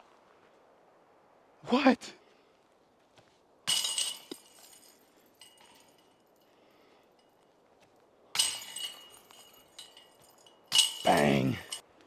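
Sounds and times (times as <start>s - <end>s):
disc hitting basket chains: 3.6s - 6.5s, 8.3s - 11.8s
faint chain clinks: 3.6s - 11.9s.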